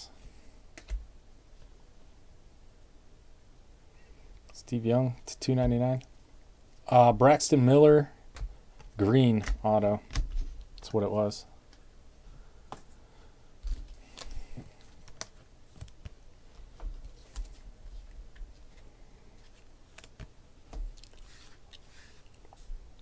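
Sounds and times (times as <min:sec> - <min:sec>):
trading cards being handled: 0:13.6 - 0:22.7.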